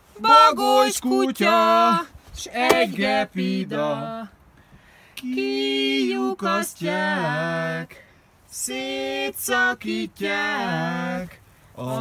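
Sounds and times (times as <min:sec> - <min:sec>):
person singing unaccompanied: 0:00.2 - 0:04.3, 0:08.5 - 0:12.0.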